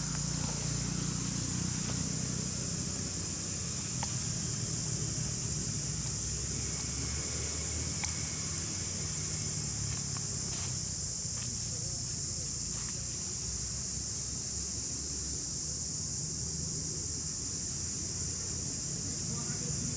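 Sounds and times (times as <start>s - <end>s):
insect chorus drone: 0.0s - 19.9s
faint ticks: 4.0s - 4.2s, 7.9s - 8.2s.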